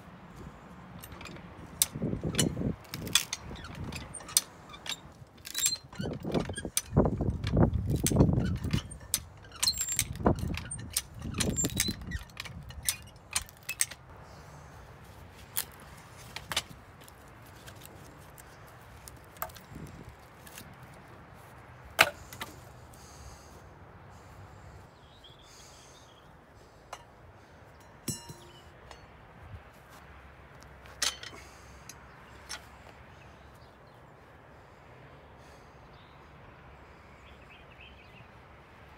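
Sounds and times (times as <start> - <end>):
farm jack clacking: 0.4 - 14.1, 15.5 - 20.7, 26.9 - 29.2
metal rattle: 0.9 - 14.1, 27.8 - 29.2, 30.8 - 32.8
wood creaking and cracking: 1.0 - 14.1.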